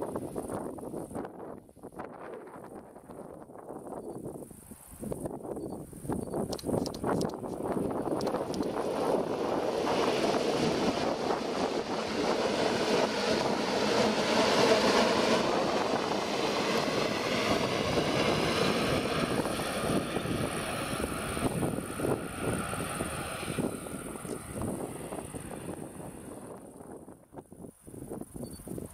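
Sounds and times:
electric locomotive whine: 5.2 - 27.6
train wheels rumbling on rails: 6.4 - 27.2.

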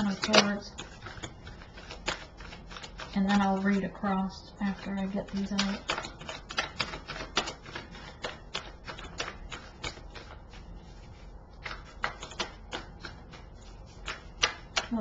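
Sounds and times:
cards clicking and snapping: 5.4 - 10.4, 11.6 - 13.4, 14.0 - 15.0.

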